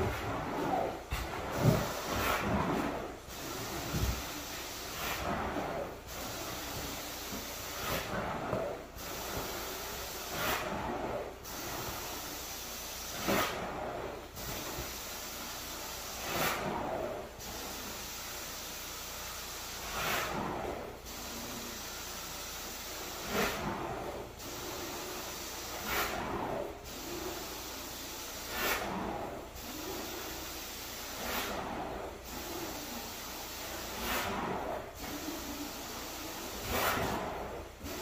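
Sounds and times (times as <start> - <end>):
rug cleaning equipment hissing: 0.0 - 10.8, 21.1 - 38.0.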